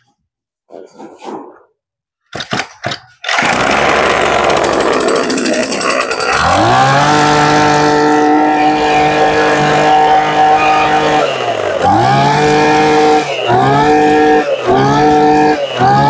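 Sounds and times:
recoil starter pulls: 0:02.4 - 0:16.0
two-stroke brush-cutter engine running: 0:03.3 - 0:16.0.

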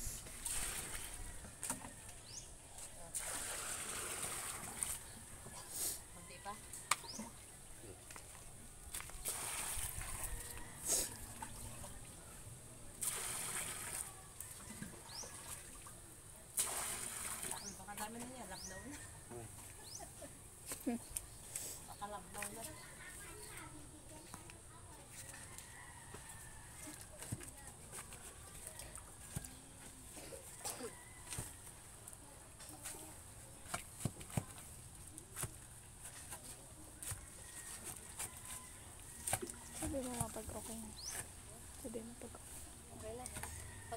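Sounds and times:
water pouring and splashing: 0:00.0 - 0:01.7, 0:03.1 - 0:05.1, 0:08.1 - 0:12.2, 0:13.0 - 0:18.1.

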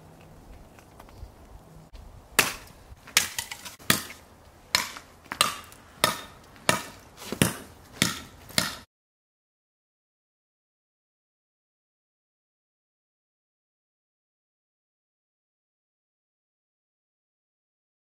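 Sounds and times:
cleaver chopping wood: 0:02.4 - 0:08.9.

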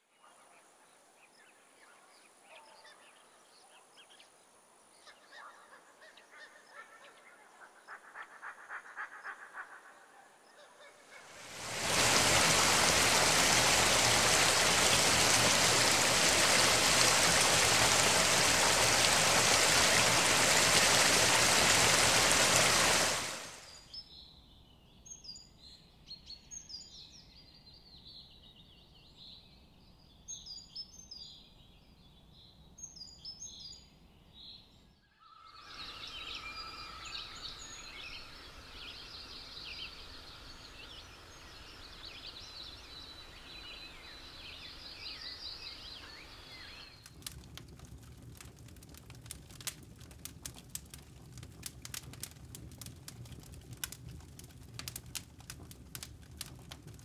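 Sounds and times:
waterfall rushing: 0:11.3 - 0:23.7.

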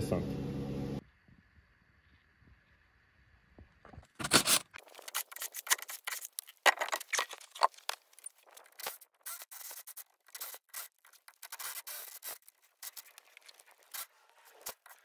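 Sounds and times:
scraping and rubbing strokes: 0:04.2 - 0:15.0.

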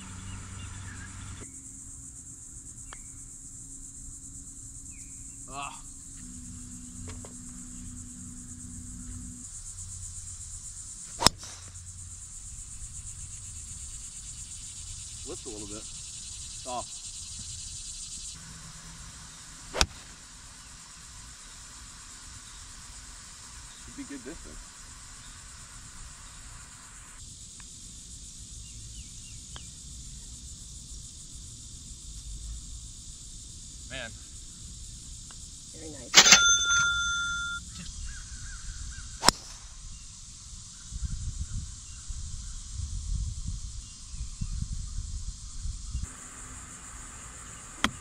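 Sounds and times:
insects buzzing: 0:00.0 - 0:48.0
golf club striking ball: 0:11.2 - 0:11.8, 0:19.7 - 0:20.1, 0:36.2 - 0:37.6
low wind rumble on microphone: 0:39.8 - 0:46.1.

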